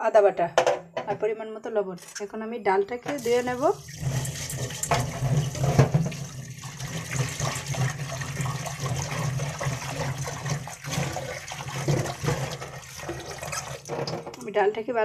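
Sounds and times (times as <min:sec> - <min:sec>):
tap water running into pot: 0:03.1 - 0:14.5.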